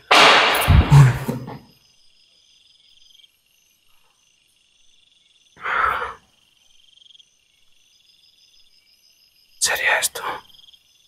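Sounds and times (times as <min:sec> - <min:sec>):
short thump: 0:00.0 - 0:01.6
night insects chirping: 0:00.0 - 0:11.0.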